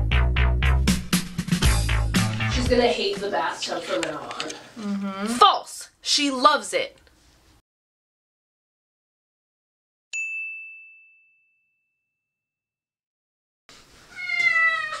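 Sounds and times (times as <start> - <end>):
bright ding: 10.2 - 12.0
cat meowing: 14.1 - 15.0.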